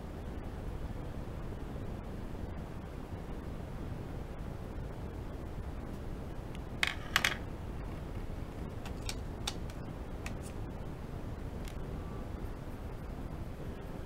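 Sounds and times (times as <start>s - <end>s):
steady low rumble: 0.0s - 14.0s
drawing tools clicking on desk: 6.8s - 7.4s, 8.8s - 10.6s.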